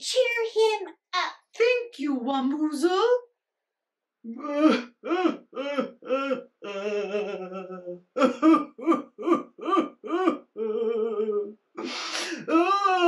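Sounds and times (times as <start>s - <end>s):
short breathy hiss: 11.8s - 12.5s.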